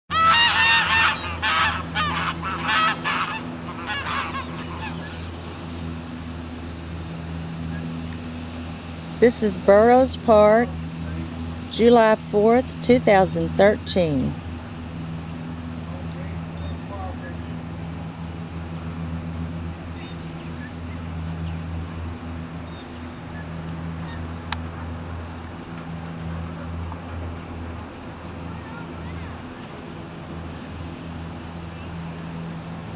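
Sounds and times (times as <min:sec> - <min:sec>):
faint bird calls: 0:00.1 - 0:05.6, 0:19.9 - 0:32.4
geese honking: 0:00.1 - 0:05.6, 0:22.7 - 0:25.3
steady low hum: 0:00.1 - 0:32.9.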